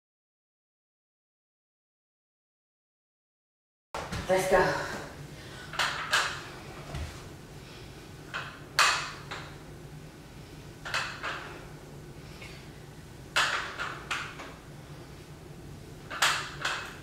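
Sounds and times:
dumbbells rattling and clacking: 5.7 - 6.5, 8.3 - 9.6, 10.8 - 11.7, 13.3 - 14.6, 16.0 - 17.0.

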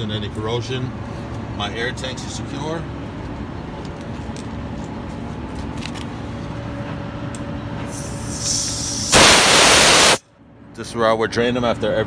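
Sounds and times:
compressed air hissing from valve: 7.9 - 10.2.

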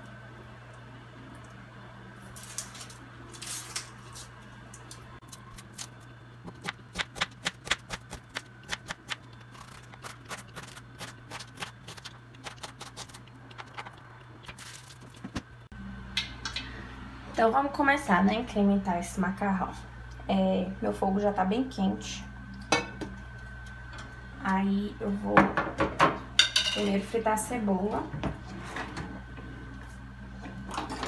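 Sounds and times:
onion skin rustling: 7.7 - 15.5.

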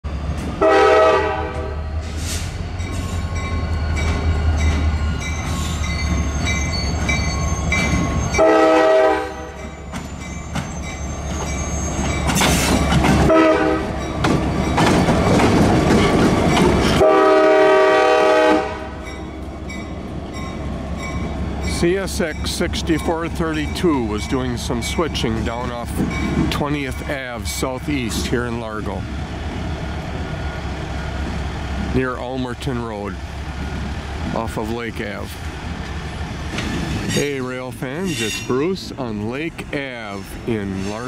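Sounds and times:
diesel engine rumbling: 0.0 - 41.0
locomotive horn blasts: 0.6 - 1.8, 8.3 - 9.8, 13.2 - 14.0, 16.9 - 19.1
wheel and rail noise: 1.4 - 41.0.

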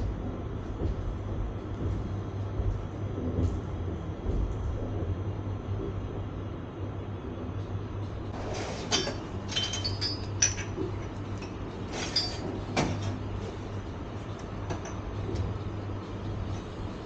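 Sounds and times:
train rumbling: 0.0 - 6.3
cups and dishes clinking: 8.9 - 13.1.

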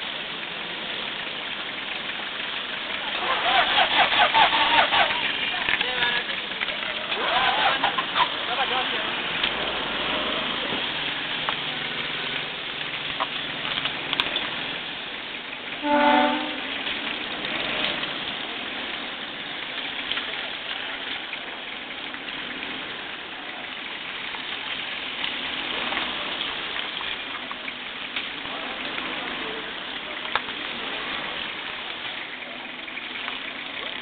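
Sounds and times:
short horn blast: 15.8 - 16.8.

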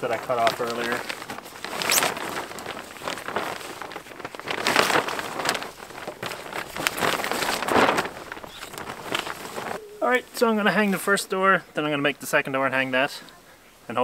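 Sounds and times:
plastic sheeting crinkling: 0.0 - 11.3.

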